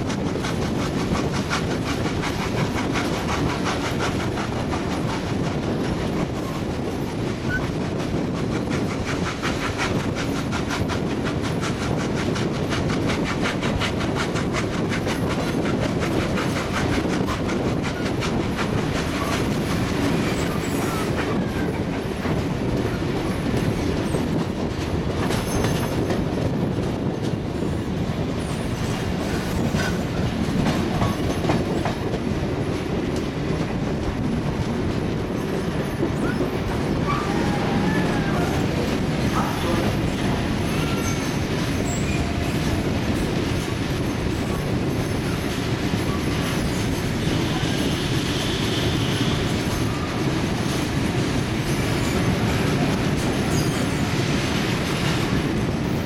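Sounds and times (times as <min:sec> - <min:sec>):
train wheels clickety-clack: 0:00.0 - 0:56.0
wheels squealing on rails: 0:00.9 - 0:11.0, 0:14.7 - 0:26.5, 0:28.4 - 0:31.9, 0:35.0 - 0:56.0.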